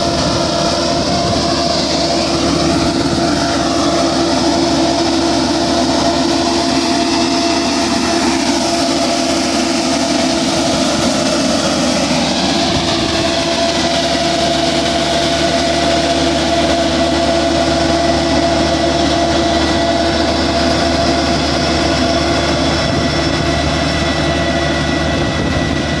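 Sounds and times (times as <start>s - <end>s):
tractor diesel engine running: 0.0s - 26.0s
vacuum whine: 0.0s - 26.0s.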